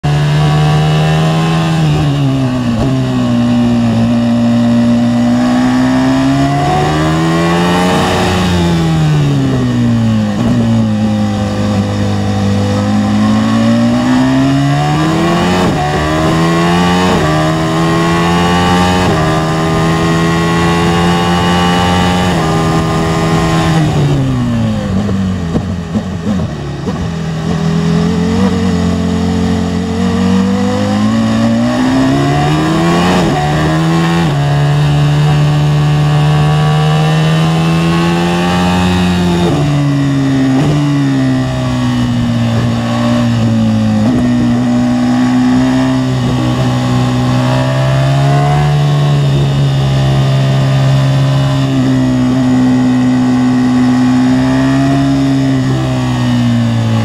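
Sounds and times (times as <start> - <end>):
racing car engine at high revs: 0.0 - 57.0.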